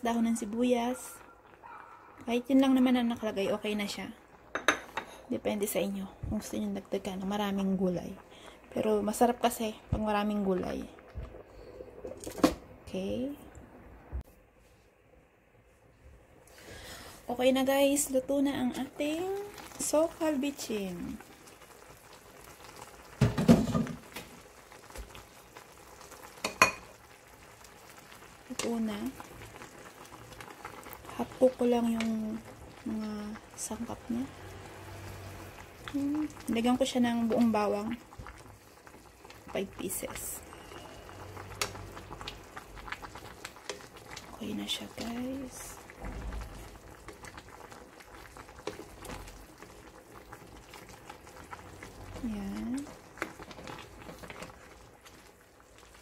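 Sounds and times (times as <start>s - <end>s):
food bubbling in a pan: 0.0s - 14.2s, 16.3s - 56.0s
cookware clattering: 4.5s - 5.2s, 26.4s - 26.9s
wooden spoon stirring stew: 45.8s - 56.0s.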